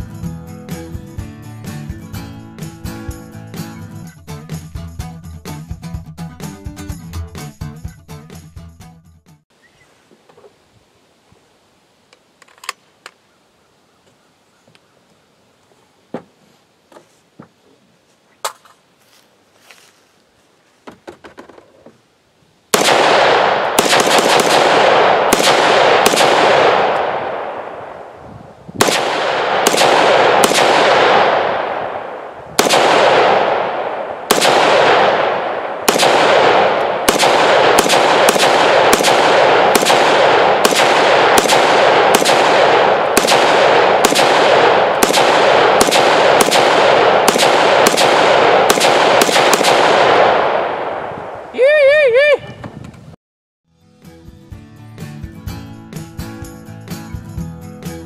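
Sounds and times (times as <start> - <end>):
rifle shots with echo: 22.7 - 28.2, 28.8 - 51.5.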